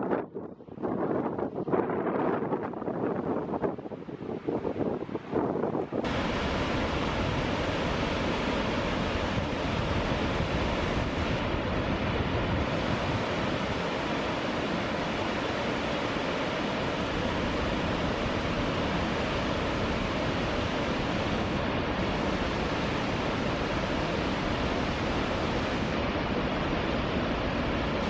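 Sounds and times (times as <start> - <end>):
floodwater rushing: 6.0 - 28.0.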